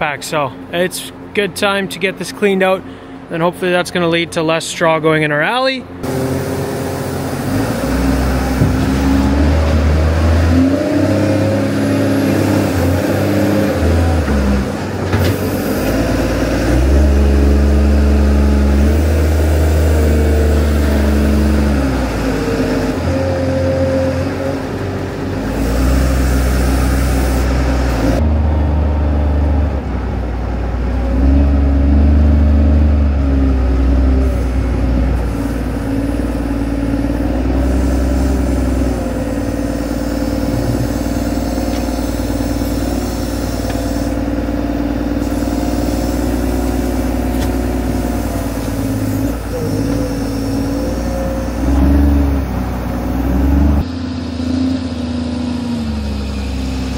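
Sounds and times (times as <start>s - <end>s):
loader engine working: 0.0s - 56.9s.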